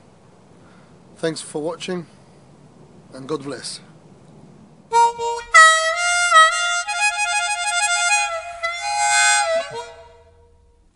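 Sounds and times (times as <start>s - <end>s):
faint background hiss: 0.0s - 10.9s
music of sustained chords: 4.9s - 10.9s.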